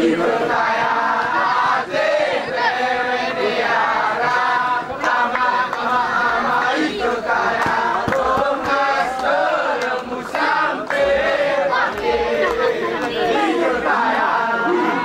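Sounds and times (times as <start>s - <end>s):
men chanting and singing: 0.0s - 15.0s
sharp claps: 4.9s - 13.4s.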